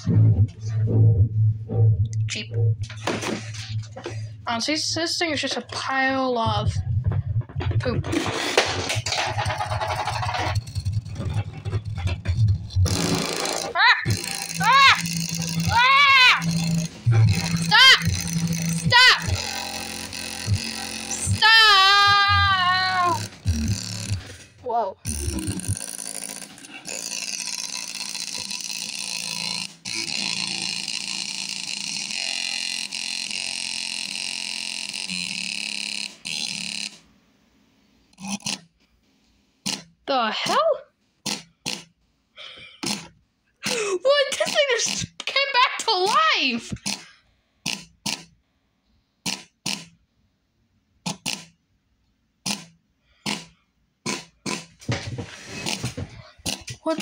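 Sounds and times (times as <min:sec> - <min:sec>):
harsh noisy speaker sound: 0:04.6 - 0:08.3, 0:10.0 - 0:24.4.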